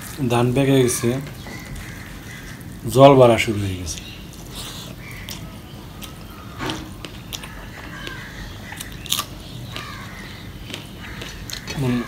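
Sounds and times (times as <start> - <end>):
chewing: 4.0 - 12.0.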